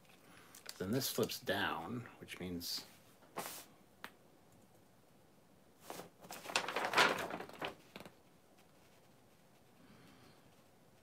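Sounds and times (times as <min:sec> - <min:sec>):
paper rustling and crinkling: 0:03.3 - 0:03.7, 0:05.8 - 0:09.5.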